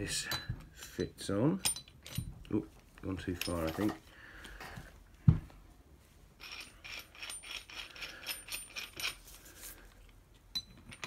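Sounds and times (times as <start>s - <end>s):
light metallic clicks and clinks: 1.6s - 4.0s.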